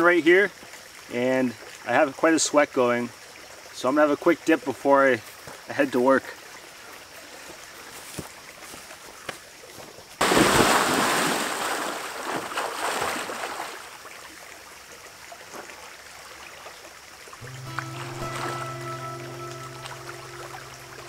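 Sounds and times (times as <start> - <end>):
person splashing into water: 10.2 - 13.9.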